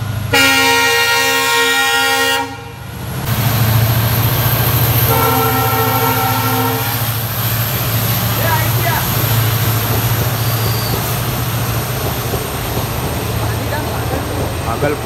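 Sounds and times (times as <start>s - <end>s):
locomotive engine drone: 0.0s - 15.0s
locomotive horn blasts: 0.3s - 2.8s, 5.1s - 7.0s.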